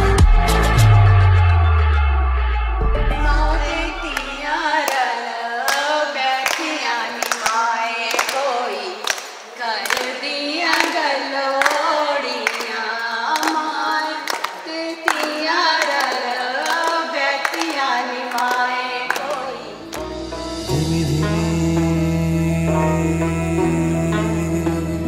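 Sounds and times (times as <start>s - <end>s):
women singing together: 3.1s - 20.0s
hands clapping along: 4.0s - 20.2s.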